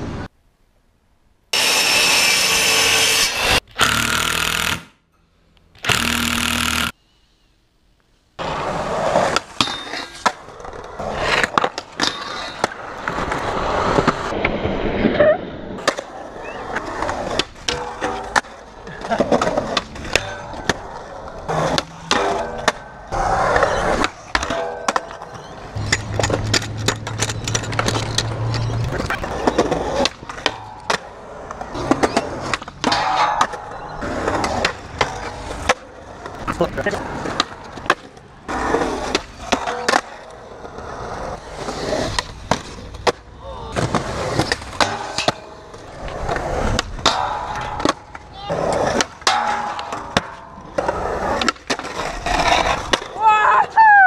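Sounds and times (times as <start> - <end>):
skateboard wheels rolling on concrete: 0.0 - 0.4, 8.0 - 54.0
electric mitre saw cutting wood: 1.6 - 4.9, 5.8 - 7.0
skateboard clacks: 41.5 - 53.2.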